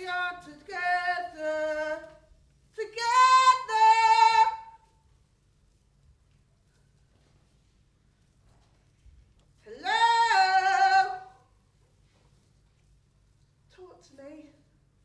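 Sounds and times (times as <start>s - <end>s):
woman singing unaccompanied: 0.0s - 4.8s, 9.6s - 11.5s, 13.8s - 14.7s.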